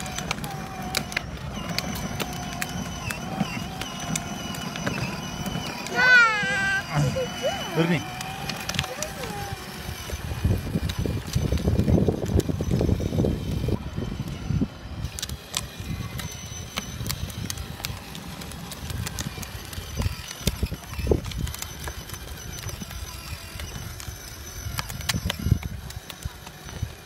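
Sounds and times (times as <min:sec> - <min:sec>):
plastic wheels rolling on asphalt: 0:00.0 - 0:27.0.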